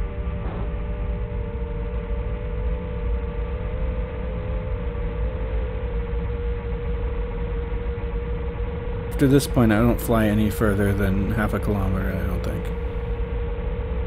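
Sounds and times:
low wind rumble: 0:00.0 - 0:13.4
quadcopter motors droning: 0:07.8 - 0:13.6.

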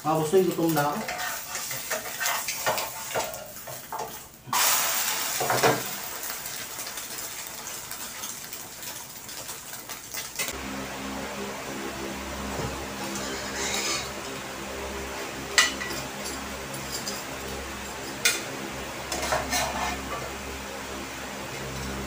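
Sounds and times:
egg sizzling in hot oil: 0:00.0 - 0:10.6, 0:12.4 - 0:22.0
metal spatula scraping frying pan: 0:01.0 - 0:04.2, 0:13.0 - 0:14.2, 0:19.1 - 0:20.3
low steady hum: 0:10.5 - 0:22.0.

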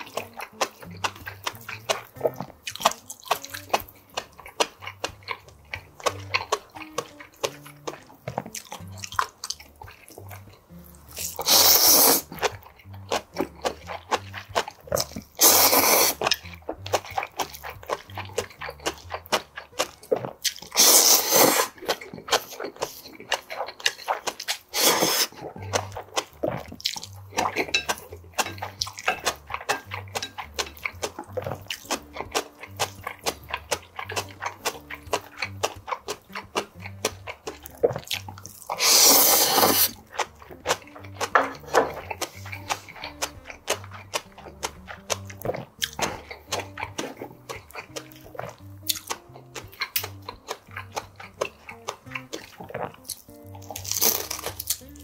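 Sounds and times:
noodles being slurped: 0:00.0 - 0:55.0
wet chewing and lip smacking: 0:00.0 - 0:55.0.

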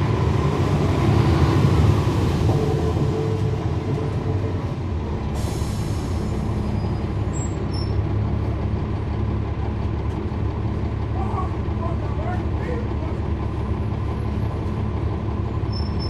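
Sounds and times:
bus diesel engine running: 0:00.0 - 0:16.0
air brake hiss: 0:05.3 - 0:06.4.

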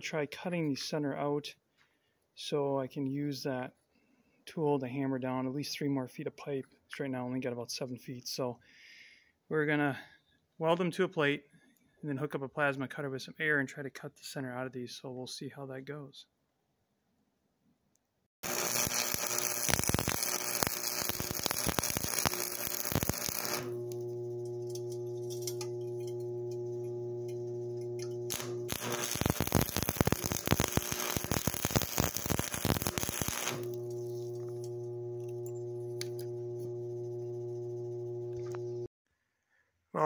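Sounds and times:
welding arc crackling: 0:18.4 - 0:38.9.

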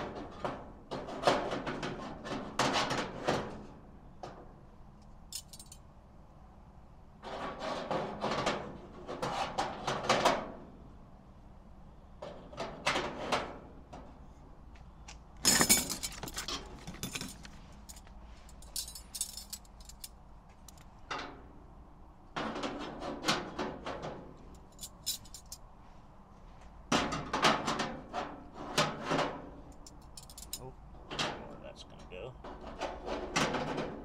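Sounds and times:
bright metal jangle: 0:05.3 - 0:05.8, 0:15.4 - 0:20.1, 0:24.6 - 0:25.6, 0:29.8 - 0:30.6
metal parts clinking and rattling: 0:05.3 - 0:05.8, 0:15.4 - 0:21.2, 0:24.5 - 0:25.6, 0:29.7 - 0:31.2.

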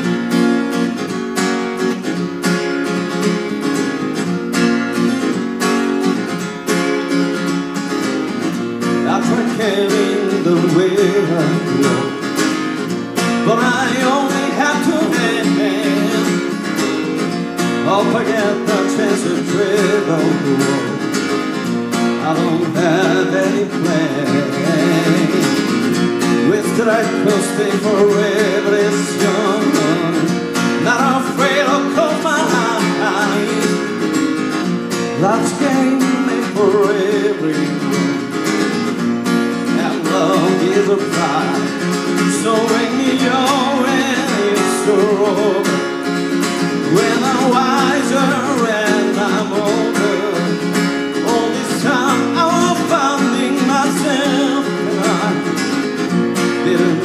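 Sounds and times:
acoustic guitar strumming: 0:00.0 - 0:57.0
man singing into a microphone: 0:08.9 - 0:12.4, 0:13.2 - 0:16.9, 0:17.6 - 0:21.4, 0:22.0 - 0:34.2, 0:35.0 - 0:38.4, 0:39.5 - 0:46.0, 0:46.6 - 0:57.0.

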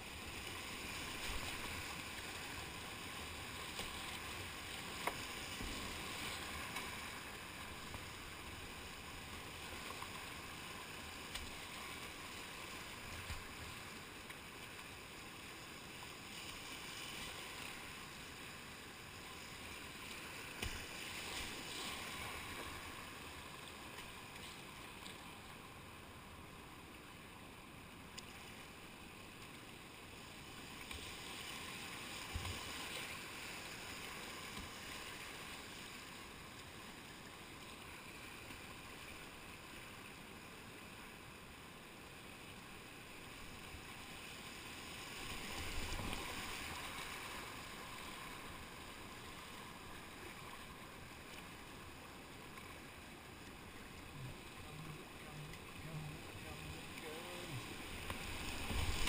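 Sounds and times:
paddle strokes splashing: 0:43.5 - 0:59.0.

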